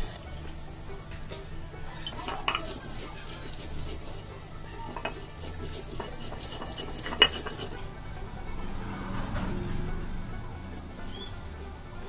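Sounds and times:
small clicks and scrapes: 0:02.0 - 0:07.8
hands scraping paste on stone: 0:02.1 - 0:07.8.

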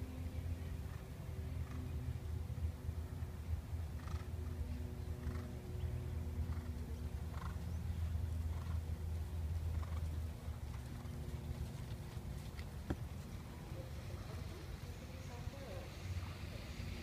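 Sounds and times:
steady low hum: 0:00.0 - 0:17.0
horse trotting: 0:06.2 - 0:14.8.

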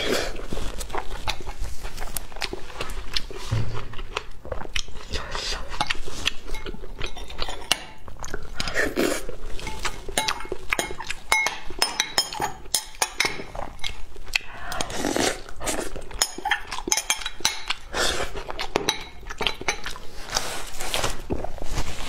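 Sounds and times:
mouth sounds of eating: 0:00.0 - 0:09.6, 0:13.4 - 0:21.6
spoon clinking against glass bowl: 0:09.6 - 0:13.5.

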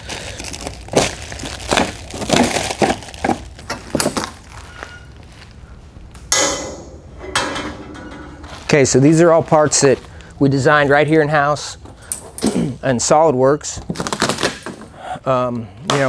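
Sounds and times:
plastic stretch wrap tearing: 0:00.0 - 0:05.6, 0:13.9 - 0:14.6.

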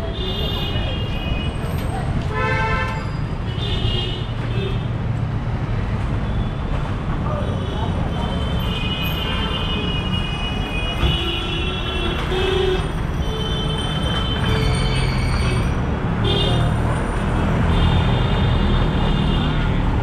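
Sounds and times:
traffic engines rumbling: 0:00.0 - 0:20.0.

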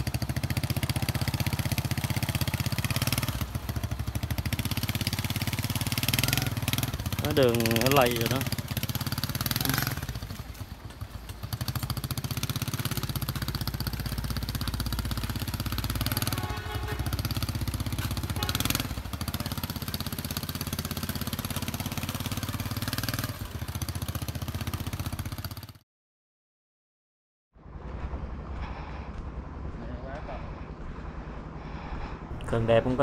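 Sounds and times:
small motorcycle engine running: 0:00.0 - 0:25.8.

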